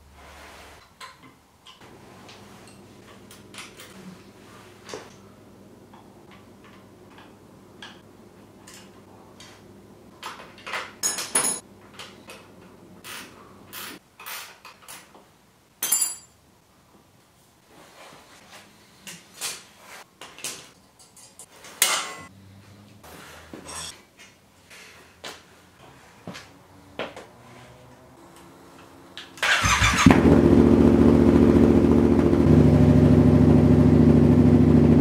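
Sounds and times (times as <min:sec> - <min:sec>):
tools clanking against metal: 0:10.2 - 0:12.6, 0:15.8 - 0:16.4, 0:20.2 - 0:22.3, 0:23.6 - 0:24.3.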